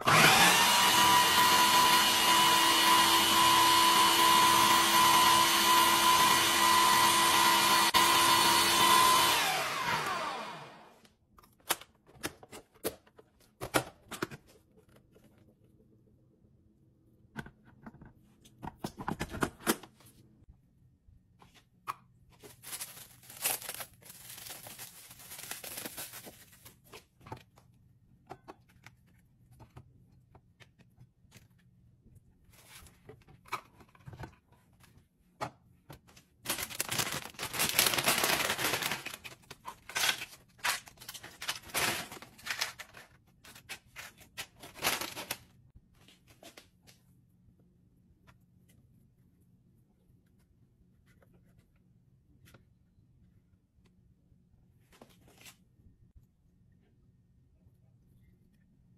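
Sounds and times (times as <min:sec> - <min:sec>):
rustling crinkling packaging: 0:22.3 - 0:27.0, 0:36.4 - 0:45.5.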